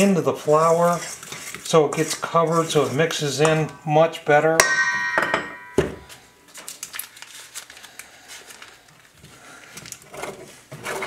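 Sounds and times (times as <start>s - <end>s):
butter grated on metal grater: 0.4s - 3.4s.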